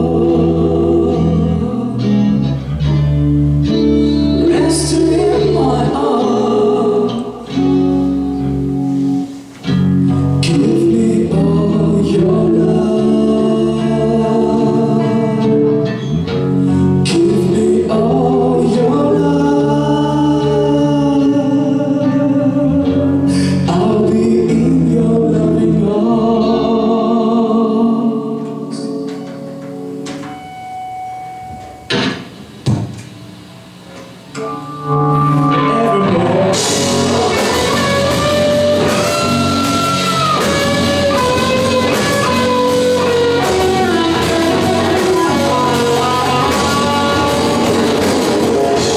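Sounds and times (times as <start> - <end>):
person singing: 0.0 - 3.0, 3.8 - 8.1, 10.2 - 29.6, 34.4 - 48.9
drums: 0.0 - 26.7, 28.3 - 48.9
bass: 0.0 - 48.9
electric guitars: 0.0 - 48.9.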